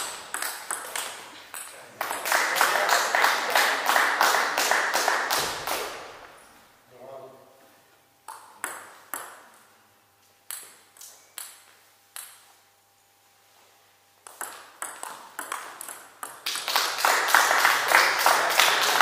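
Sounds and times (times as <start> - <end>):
table tennis ball bouncing: 0.0 - 2.3, 8.3 - 9.7, 10.5 - 12.5, 14.2 - 16.8
people clapping: 0.0 - 6.1, 16.4 - 19.0.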